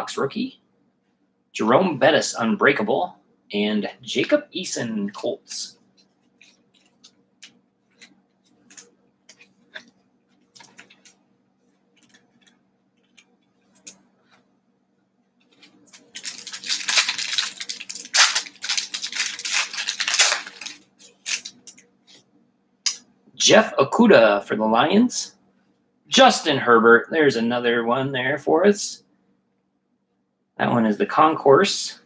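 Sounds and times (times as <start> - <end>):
plastic wrapper crinkling: 10.3 - 11.2, 15.5 - 21.8.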